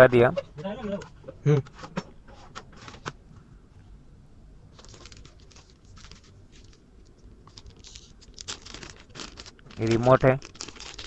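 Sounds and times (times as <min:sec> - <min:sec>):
plastic bag crinkling: 0:04.7 - 0:11.0.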